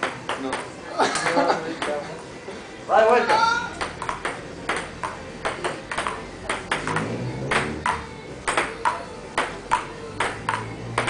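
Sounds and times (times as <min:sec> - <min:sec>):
table tennis ball clicking: 0:03.8 - 0:11.0.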